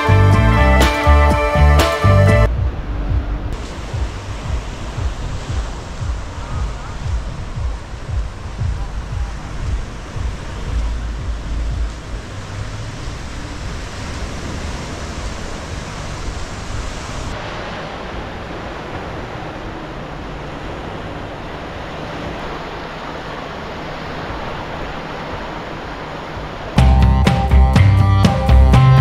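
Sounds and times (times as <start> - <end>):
waves breaking: 0.0 - 29.0
surf washing over rocky shore: 3.6 - 27.7.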